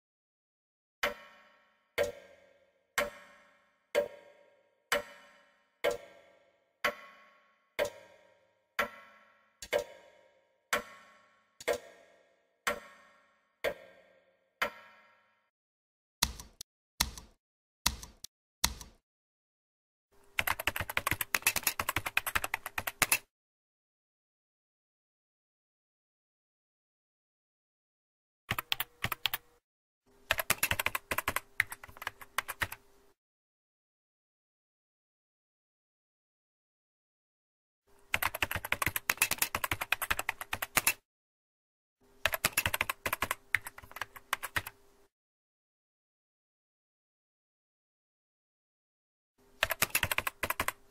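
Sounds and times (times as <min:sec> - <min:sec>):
keyboard key clicks: 0:16.2 - 0:19.0
typing on a computer keyboard: 0:16.2 - 0:19.0, 0:20.4 - 0:23.3, 0:28.5 - 0:29.5, 0:30.3 - 0:32.8, 0:38.1 - 0:41.0, 0:42.2 - 0:44.8, 0:49.6 - 0:50.9.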